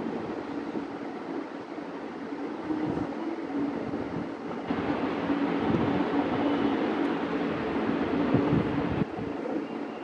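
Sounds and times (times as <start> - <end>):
steady rumbling: 4.6 - 9.1.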